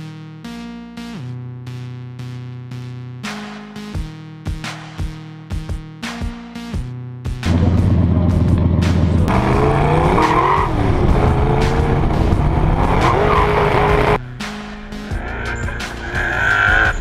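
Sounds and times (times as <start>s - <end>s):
car engine revving: 7.4s - 17.0s
tyre squeal: 15.3s - 17.0s.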